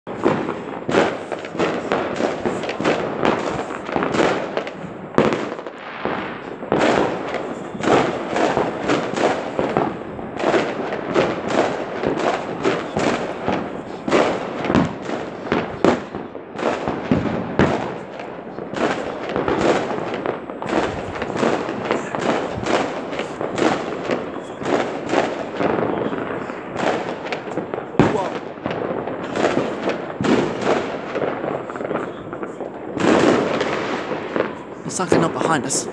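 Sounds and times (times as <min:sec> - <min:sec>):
fireworks bangs and crackles: 0:00.0 - 0:35.9.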